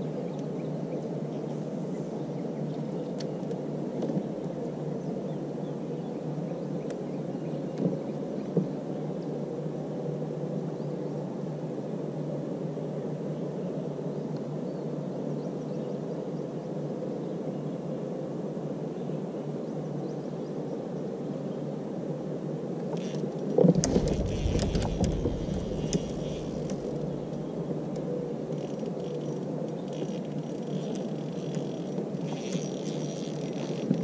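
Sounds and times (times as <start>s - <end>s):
clicks and thumps on kayak: 22.9s - 34.0s.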